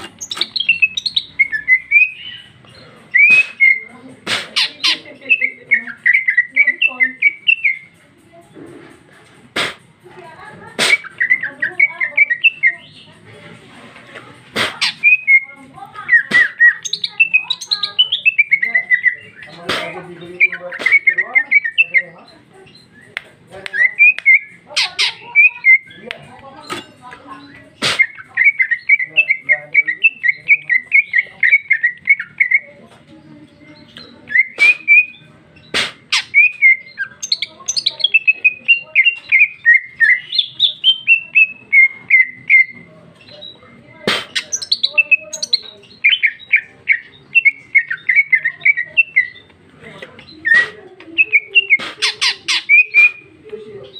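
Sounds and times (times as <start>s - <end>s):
bird singing rapid chirps: 0.0s - 8.0s, 10.7s - 13.2s, 14.6s - 32.8s, 33.4s - 49.6s, 50.2s - 53.9s.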